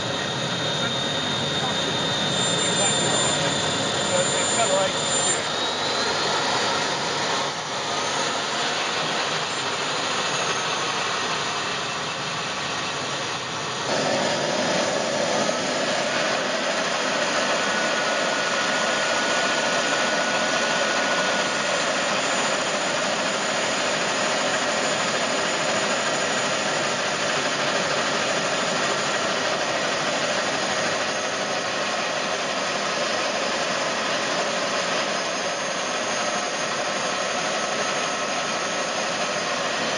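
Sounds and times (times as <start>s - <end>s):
model gas turbine whine: 0.0s - 39.9s.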